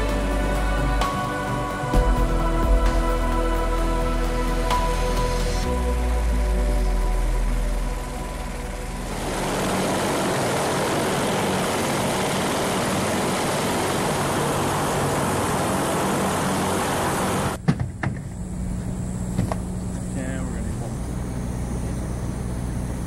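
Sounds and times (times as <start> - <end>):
loud rushing noise: 4.6 - 17.6.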